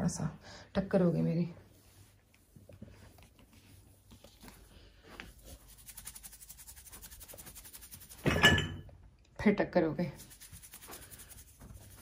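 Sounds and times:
powder shaken from shaker bottle: 0:05.3 - 0:08.3, 0:10.2 - 0:12.0.

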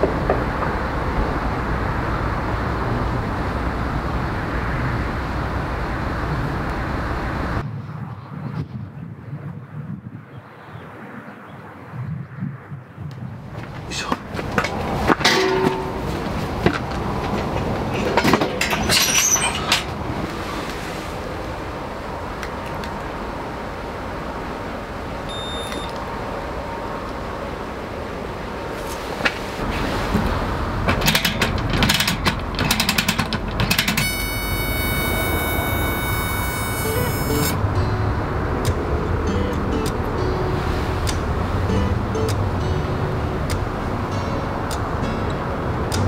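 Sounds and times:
metal stove clinking and knocking: 0:15.2 - 0:16.2, 0:30.9 - 0:34.0
high electric igniter buzz: 0:25.3 - 0:26.0, 0:33.8 - 0:37.8
steady low rumble: 0:37.0 - 0:46.0.

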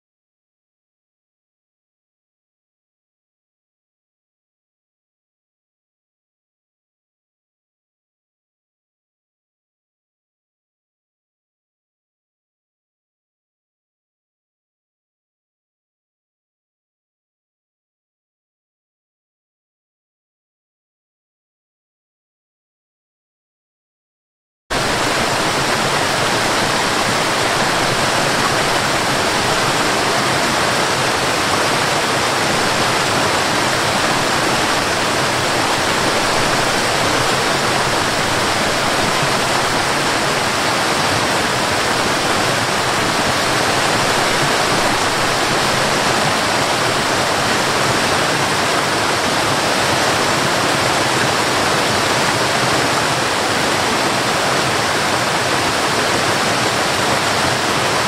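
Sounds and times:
waterfall rushing: 0:24.7 - 0:58.0.

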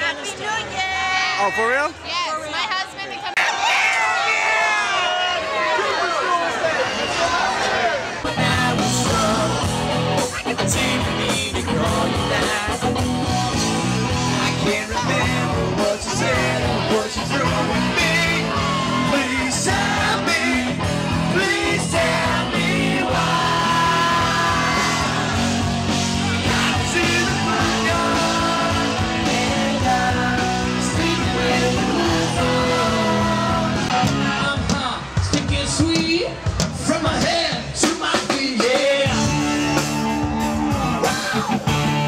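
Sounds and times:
person singing: 0:08.2 - 0:13.1, 0:14.2 - 0:34.4
rock band playing: 0:08.3 - 0:42.0.

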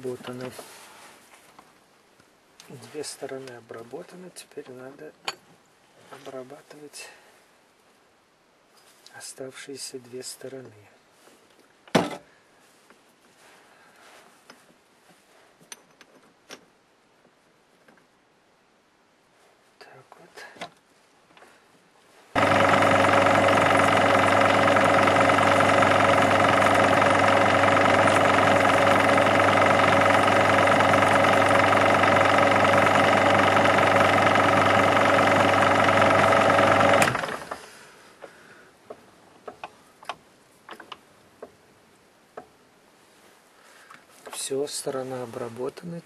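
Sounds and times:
metal lathe humming and whining: 0:22.4 - 0:37.6.

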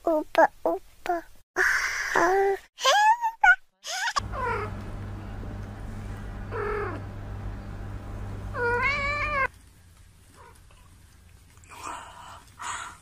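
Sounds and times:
steady low hum: 0:04.2 - 0:09.5
cat meowing: 0:08.5 - 0:09.5.

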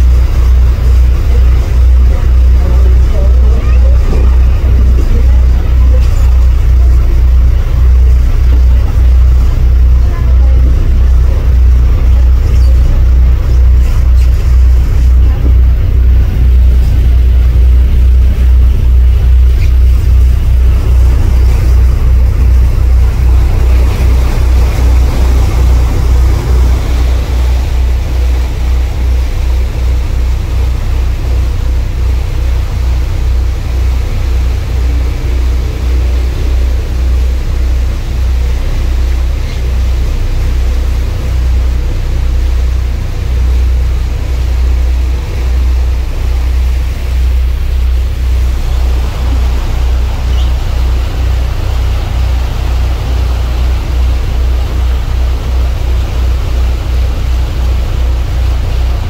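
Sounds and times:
boat engine low rumble: 0:00.0 - 0:59.0
churning wake rushing: 0:00.0 - 0:59.0.

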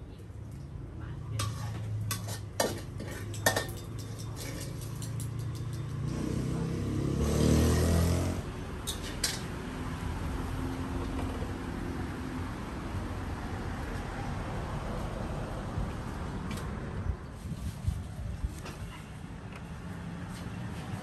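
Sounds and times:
metal spatula scraping a wok: 0:01.4 - 0:06.0.

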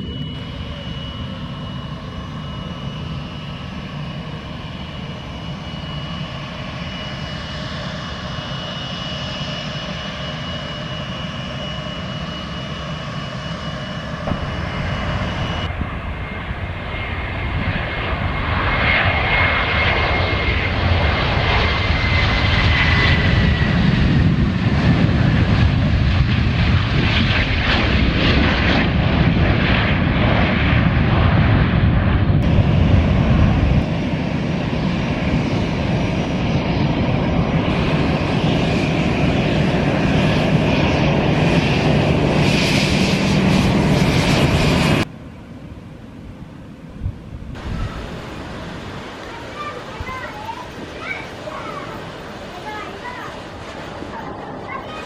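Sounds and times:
jet engines at takeoff power: 0:00.0 - 0:55.0
jet engines whining while taxiing: 0:00.0 - 0:55.0.

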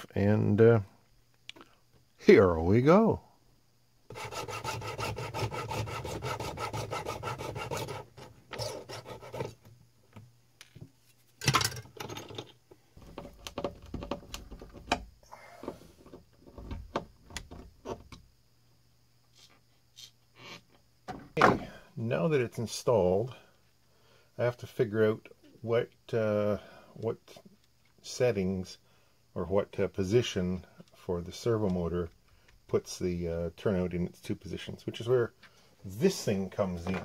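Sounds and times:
tool scraping on wood: 0:04.1 - 0:09.7
small parts clicking and knocking: 0:10.1 - 0:15.1.

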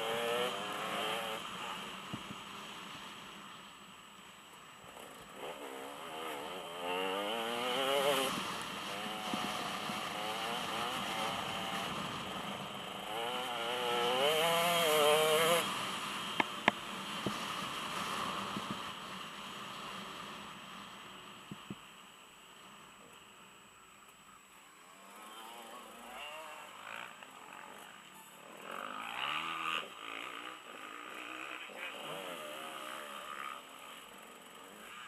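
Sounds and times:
dirt bike engine revving: 0:00.0 - 0:02.8, 0:04.9 - 0:18.7, 0:25.0 - 0:35.0.

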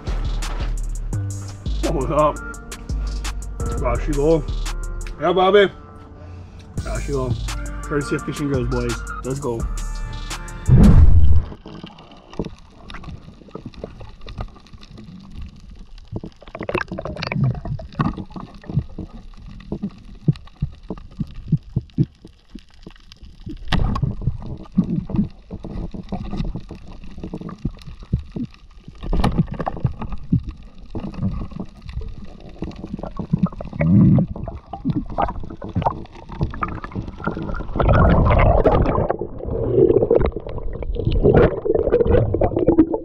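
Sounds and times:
sharp underwater clicks: 0:10.3 - 0:43.0
loud thump: 0:10.7 - 0:11.5
underwater sloshing and gurgling: 0:10.7 - 0:43.0.

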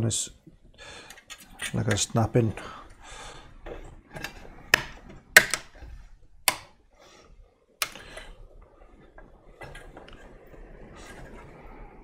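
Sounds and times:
connectors clicking onto terminals: 0:01.0 - 0:03.0, 0:03.6 - 0:06.8, 0:07.8 - 0:08.4.

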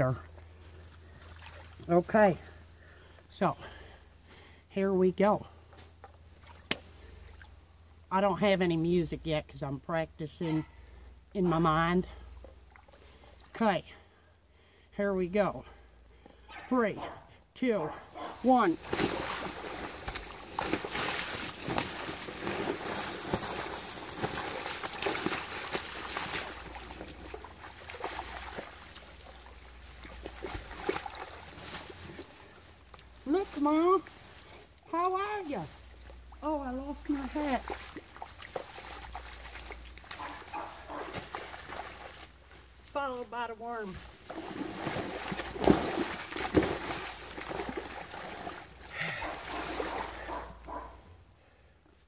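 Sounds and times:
water splashing in puddle: 0:18.6 - 0:33.2, 0:37.0 - 0:42.4, 0:44.0 - 0:50.5.

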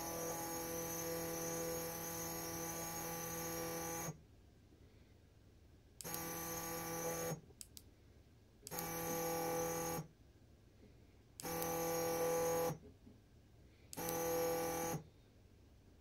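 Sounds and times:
stepper motor humming whine: 0:00.0 - 0:04.1.

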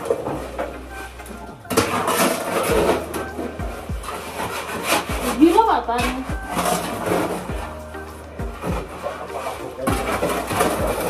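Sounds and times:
shovel scraping wet cement: 0:01.7 - 0:11.0.

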